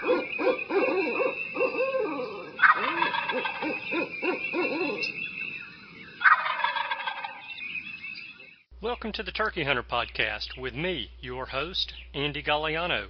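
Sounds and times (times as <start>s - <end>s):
turkey gobbling: 0.0s - 5.3s, 6.2s - 7.6s
lower calling notes: 0.0s - 12.9s.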